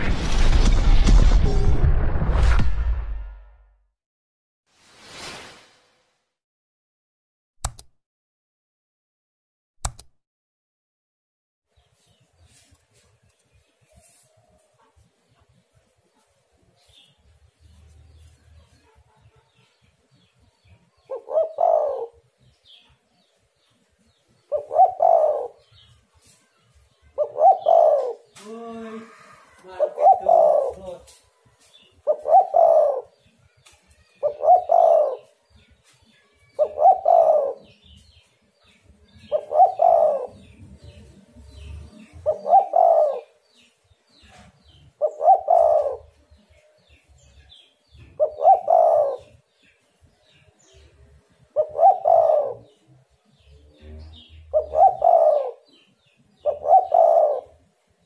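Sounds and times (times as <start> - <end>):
dove cooing: 21.1 - 22.3, 24.5 - 25.7, 27.2 - 31.1, 32.0 - 33.1, 34.2 - 35.3, 36.6 - 37.8, 39.2 - 43.4, 45.0 - 46.1, 48.0 - 49.4, 51.6 - 52.8, 54.1 - 55.7, 56.4 - 57.6.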